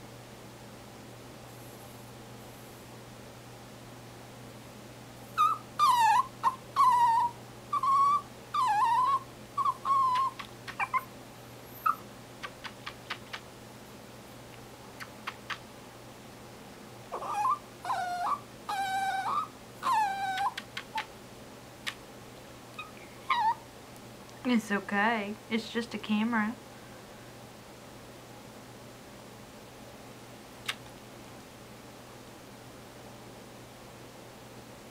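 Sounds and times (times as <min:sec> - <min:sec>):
dog whining squeaks: 0:05.4 - 0:11.1, 0:17.2 - 0:21.0, 0:22.8 - 0:23.6.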